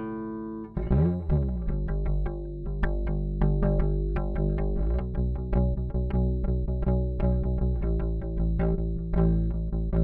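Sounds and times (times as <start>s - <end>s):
bass guitar plucked fingerstyle: 0.0s - 10.0s.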